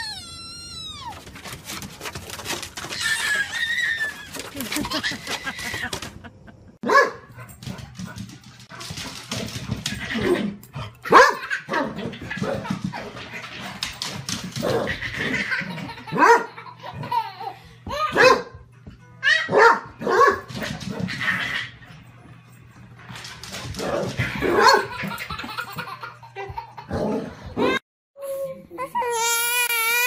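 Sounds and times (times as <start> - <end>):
dog barking in high yips: 6.8 - 7.2, 11.1 - 11.5, 19.4 - 20.5.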